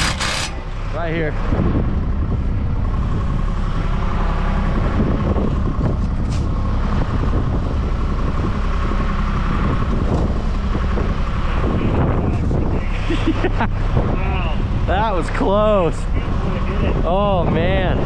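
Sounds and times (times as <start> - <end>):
digging in rocky soil: 0.0 - 0.6
wind buffeting microphone: 0.0 - 18.0.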